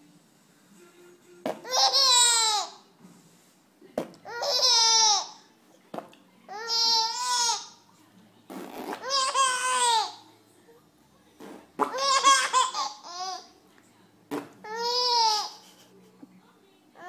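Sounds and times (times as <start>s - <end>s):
baby laughing: 1.6s - 2.8s, 4.3s - 5.4s, 9.0s - 10.2s, 11.8s - 13.5s, 14.6s - 15.9s.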